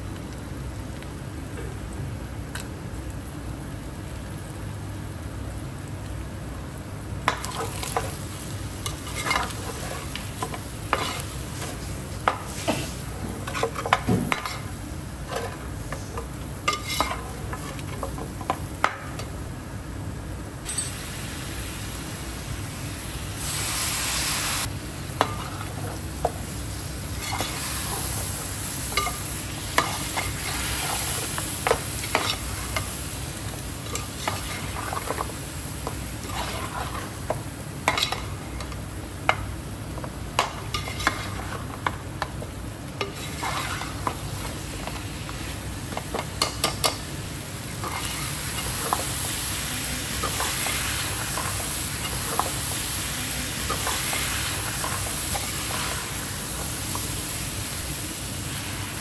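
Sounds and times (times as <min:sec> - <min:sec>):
food sizzling in oil: 0:00.0 - 0:59.0
spoon scraping a pot: 0:10.9 - 0:11.7, 0:16.7 - 0:18.1, 0:36.2 - 0:37.1, 0:43.0 - 0:44.1.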